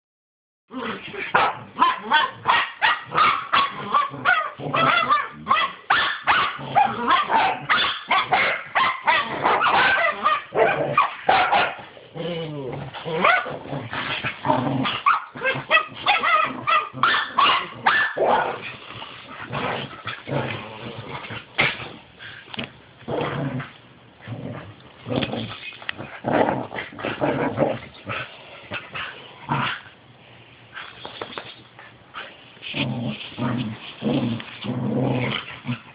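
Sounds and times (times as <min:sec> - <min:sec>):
dogs barking and yipping: 0:01.3 - 0:11.9, 0:13.2 - 0:13.5, 0:14.8 - 0:18.5.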